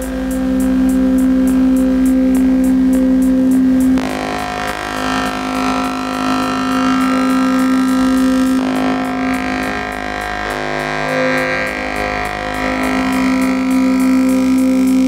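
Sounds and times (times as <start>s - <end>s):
synthesizer drone tones: 0.0s - 15.0s.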